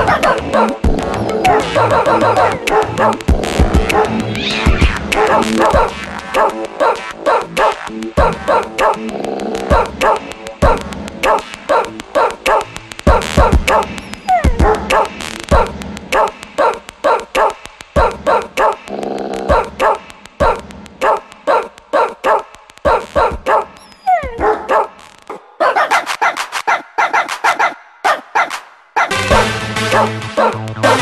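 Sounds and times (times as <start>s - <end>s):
dog barking: 0.0s - 3.2s, 3.8s - 4.2s, 5.2s - 9.0s, 9.7s - 18.8s, 19.5s - 31.0s
dog yelping: 0.0s - 3.2s, 9.7s - 15.1s, 21.0s - 24.9s, 25.6s - 29.1s
background music: 0.0s - 26.6s, 29.1s - 31.0s.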